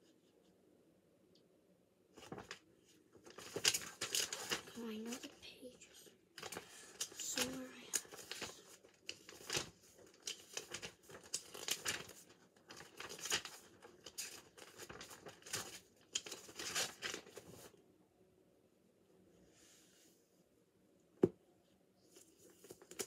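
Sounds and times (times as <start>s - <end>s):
paper rustling and crinkling: 2.2s - 17.8s, 22.1s - 23.0s.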